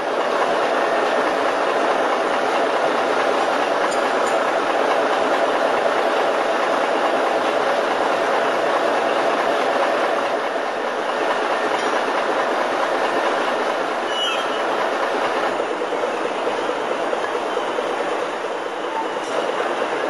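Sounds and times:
crane engine rumbling: 0.0s - 20.0s
high squeak: 14.1s - 14.7s.

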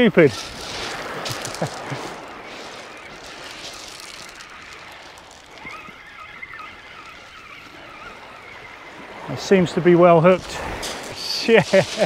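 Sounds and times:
surf: 0.0s - 12.0s
wind: 0.0s - 12.0s
faint gull call: 0.3s - 9.8s.

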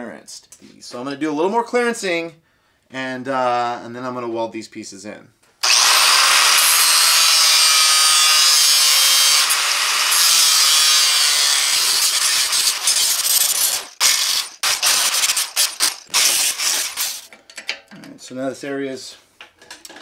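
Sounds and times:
angle grinder cutting steel: 5.6s - 17.3s.

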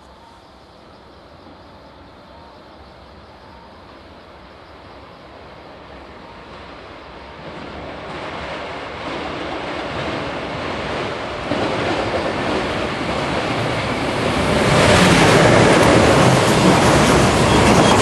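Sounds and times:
freight train rumbling past: 0.0s - 18.0s.

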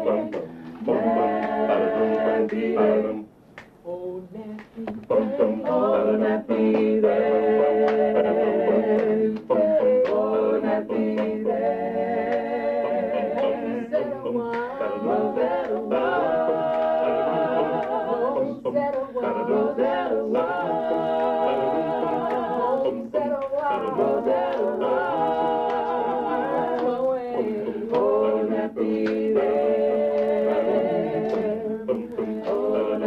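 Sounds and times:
group singing a cappella: 0.0s - 33.0s.

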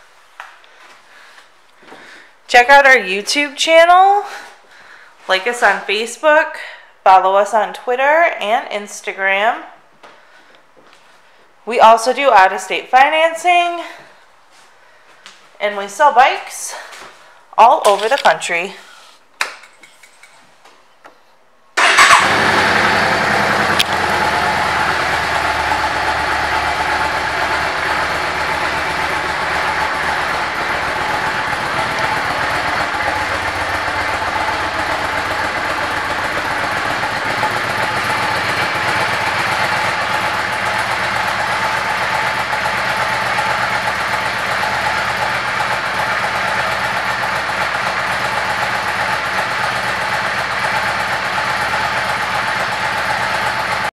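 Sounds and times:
motorcycle engine starting and idling: 21.8s - 53.9s.

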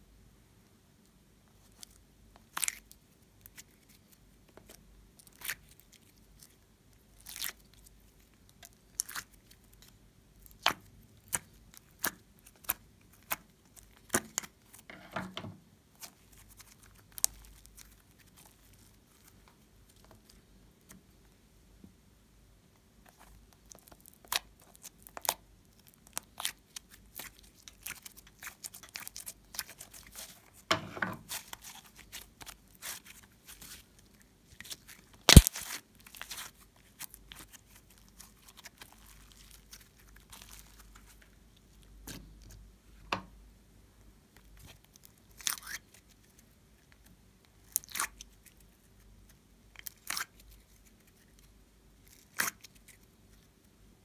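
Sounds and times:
sticky slime crackling and tearing: 1.7s - 14.9s, 15.9s - 19.4s, 23.1s - 42.6s, 44.5s - 46.4s, 47.6s - 48.7s, 49.7s - 51.2s, 52.0s - 53.1s.

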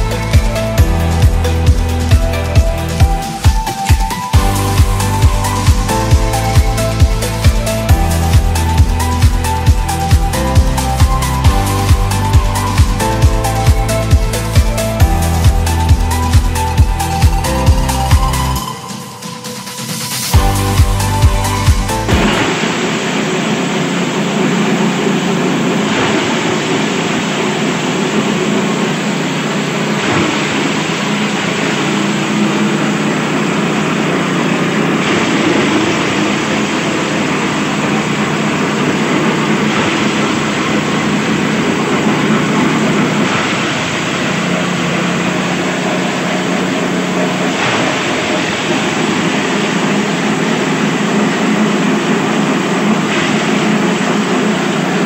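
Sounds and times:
small engine droning: 0.0s - 55.0s
cutting blades shredding stalks: 22.0s - 55.0s.

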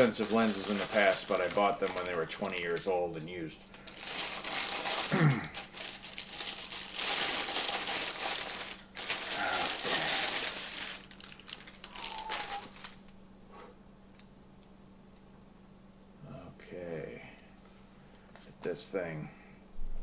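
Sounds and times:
packaging rustling and crinkling: 0.0s - 13.1s.

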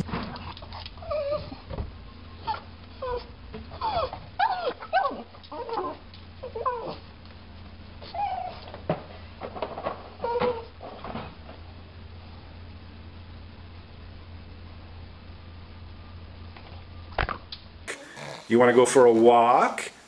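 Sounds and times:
steady low hum: 0.0s - 20.0s
dog whimpering: 0.4s - 1.8s, 2.4s - 7.1s, 8.0s - 8.7s, 10.1s - 10.8s.

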